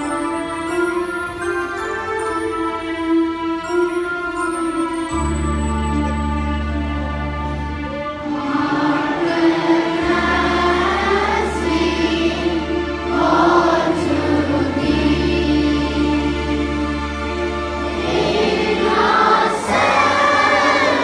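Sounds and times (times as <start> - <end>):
held instrumental chords: 0.0 - 21.0
congregation singing a hymn: 8.2 - 16.9, 17.9 - 21.0.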